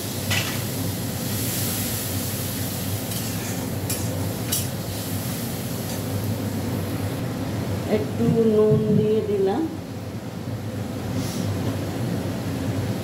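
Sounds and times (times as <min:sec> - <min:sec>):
steady low hum: 0:00.0 - 0:13.0
sauce sizzling in a pan: 0:00.1 - 0:06.2.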